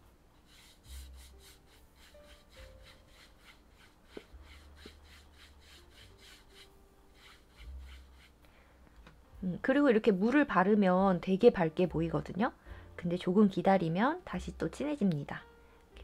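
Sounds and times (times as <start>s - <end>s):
paintbrush scratching on paper: 0.4s - 8.4s.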